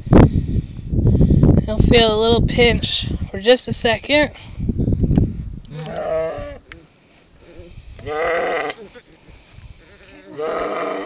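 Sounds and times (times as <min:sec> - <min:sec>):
lamb bleating: 0:05.7 - 0:06.6, 0:08.0 - 0:08.8, 0:09.8 - 0:11.0.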